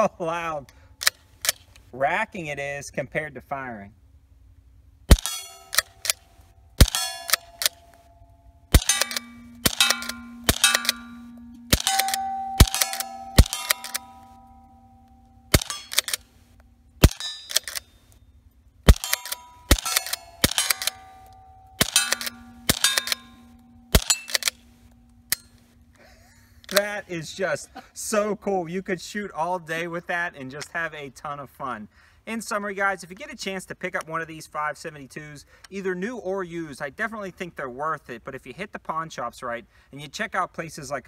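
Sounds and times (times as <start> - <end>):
small rifle shots: 5.1 - 6.2, 6.8 - 8.0, 8.7 - 14.6, 15.5 - 16.3, 17.0 - 17.8, 18.9 - 24.6
rifle pump slide clacking: 8.8 - 14.5, 18.9 - 24.6.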